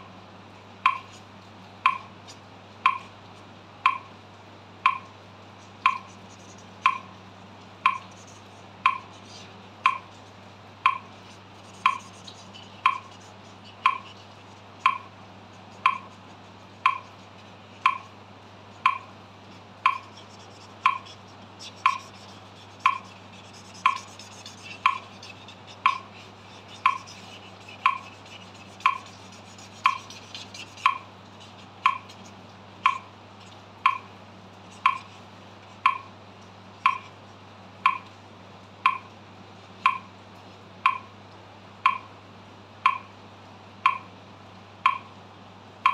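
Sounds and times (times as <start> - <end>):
metronome ticking: 0.8 - 1.1, 1.9 - 2.1, 2.8 - 3.1, 3.8 - 4.1, 4.8 - 5.2, 5.8 - 7.1, 7.8 - 9.2, 9.8 - 10.2, 10.8 - 17.2, 17.8 - 18.1, 18.8 - 19.1, 19.8 - 31.1, 31.8 - 32.2, 32.8 - 33.1, 33.8 - 34.1, 34.8 - 35.2, 35.8 - 36.1, 36.8 - 37.2, 37.8 - 38.1, 38.8 - 39.1, 39.8 - 40.1, 40.8 - 41.1, 41.8 - 42.1, 42.8 - 43.1, 43.8 - 44.1, 44.8 - 45.1
marker scratching on paper: 5.6 - 7.2, 7.8 - 36.0.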